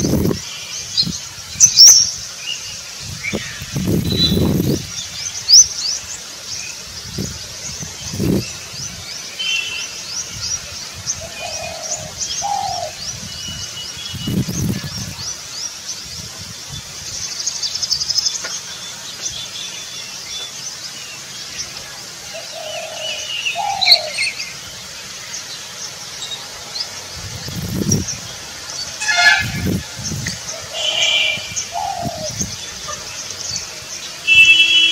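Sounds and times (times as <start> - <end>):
small birds chirping: 0.0 - 34.9
dove cooing: 30.6 - 33.1.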